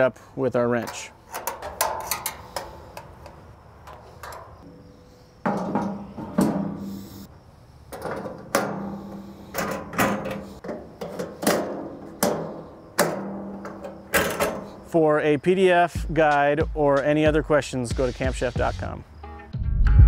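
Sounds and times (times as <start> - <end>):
metal grill parts clanking: 0.6 - 7.3, 7.9 - 15.0.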